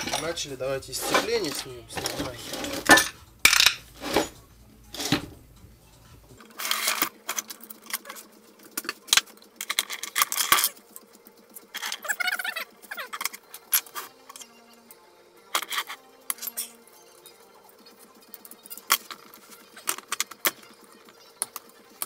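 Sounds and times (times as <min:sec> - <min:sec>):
metal tools clanking: 0:00.0 - 0:05.4.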